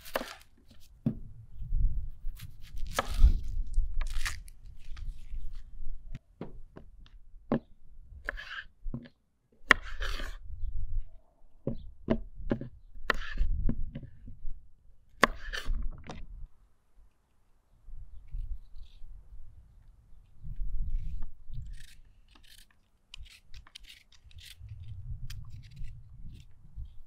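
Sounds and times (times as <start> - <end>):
carrots crunching: 2.6 - 5.3.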